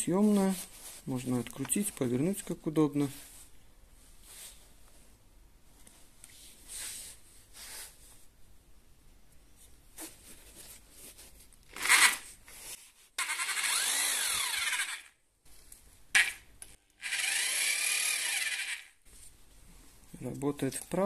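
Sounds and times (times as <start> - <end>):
power drill spinning without load: 11.7 - 12.4, 13.2 - 15.2, 16.2 - 19.0.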